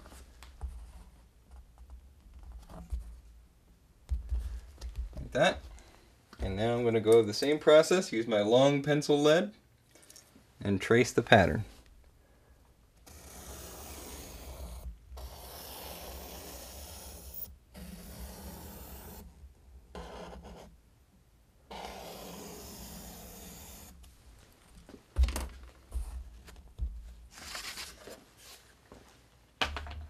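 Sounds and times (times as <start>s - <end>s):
pencil scratching on board: 13.0s - 19.3s, 19.9s - 20.8s, 21.7s - 24.0s.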